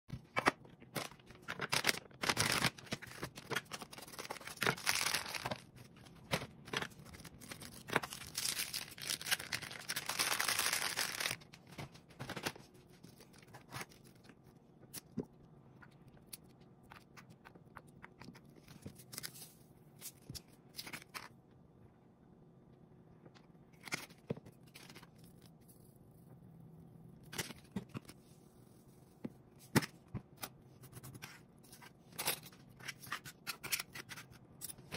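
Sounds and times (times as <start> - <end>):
rustling and tearing: 1.0 - 14.3.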